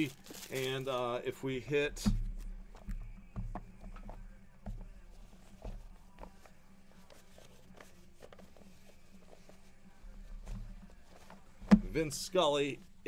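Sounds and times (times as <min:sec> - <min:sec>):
trading cards clicking and rustling: 0:00.0 - 0:01.1.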